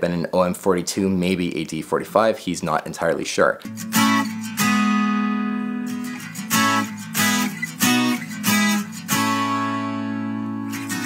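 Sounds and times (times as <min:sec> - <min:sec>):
acoustic guitars strumming chords: 0:03.6 - 0:11.0.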